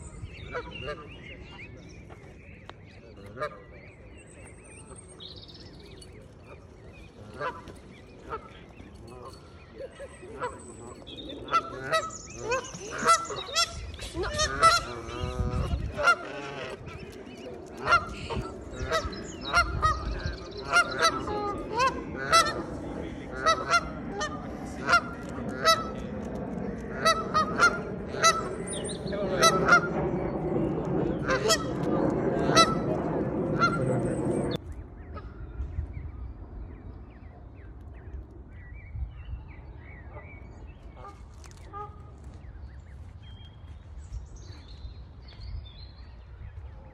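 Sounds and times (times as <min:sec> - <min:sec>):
goose honking: 0:07.2 - 0:09.4, 0:10.3 - 0:17.1, 0:17.7 - 0:26.0, 0:26.9 - 0:28.6, 0:29.3 - 0:29.9, 0:31.2 - 0:32.9, 0:33.6 - 0:33.9.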